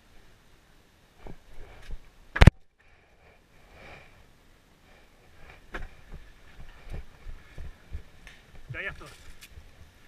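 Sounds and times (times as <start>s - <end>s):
person breathing softly: 2.8s - 7.7s.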